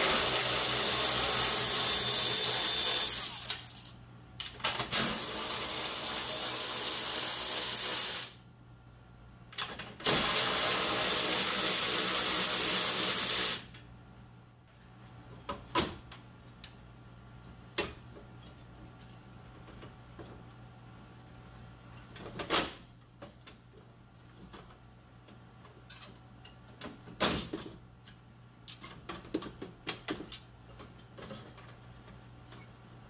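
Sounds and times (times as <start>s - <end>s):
cordless electric ratchet running: 0.0s - 3.9s
metal parts clicking and knocking: 3.3s - 4.9s, 25.6s - 32.7s.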